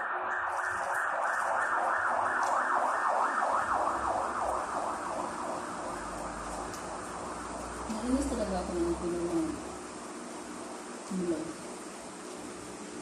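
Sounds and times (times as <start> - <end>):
siren rising sweeps: 0.0 - 7.0.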